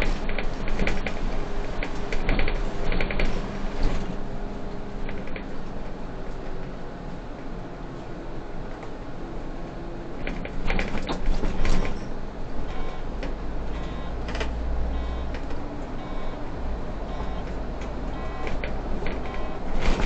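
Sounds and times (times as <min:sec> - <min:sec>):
sharp knocks and clicks: 0:00.0 - 0:04.0, 0:10.2 - 0:12.0, 0:17.1 - 0:20.0
bus driving rumble: 0:00.0 - 0:20.0.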